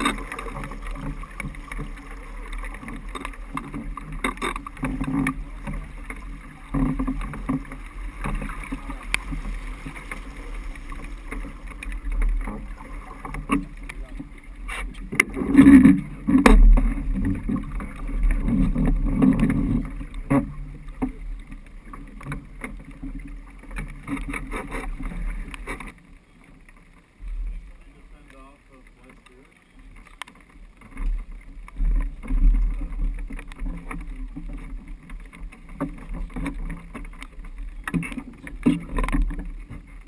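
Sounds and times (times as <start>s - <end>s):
water splashing along hull: 0.0s - 40.0s.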